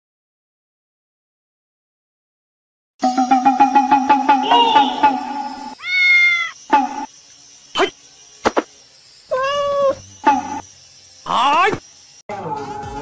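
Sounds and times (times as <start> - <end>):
fast-pulsing tone: 3.0 - 12.2
kitten meowing: 5.8 - 6.6, 9.3 - 10.0.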